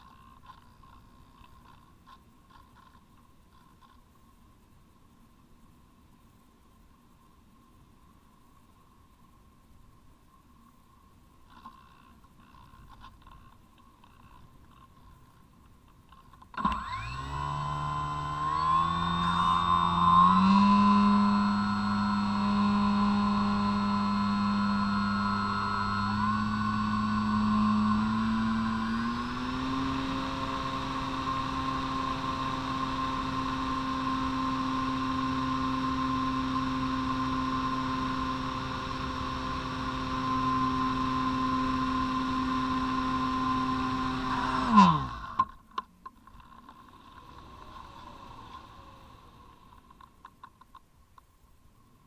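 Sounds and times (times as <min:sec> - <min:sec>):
electric motor and propeller whine: 0:16.5 - 0:45.6, 0:46.4 - 0:50.1.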